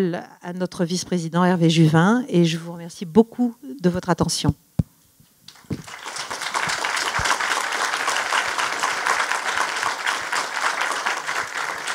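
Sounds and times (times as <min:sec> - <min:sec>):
audience applauding: 0:05.5 - 0:11.9.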